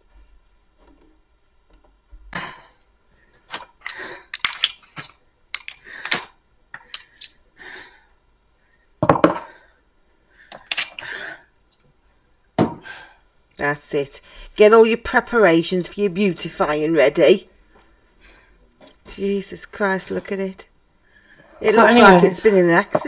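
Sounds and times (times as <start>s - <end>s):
wig stand knocking and clattering: 9.0s - 9.5s.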